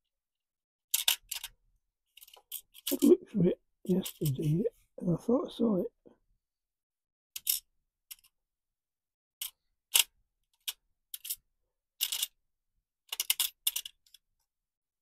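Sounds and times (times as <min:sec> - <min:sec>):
metal parts clicking: 0:00.9 - 0:01.5, 0:09.4 - 0:11.4, 0:12.0 - 0:12.4, 0:13.1 - 0:14.2.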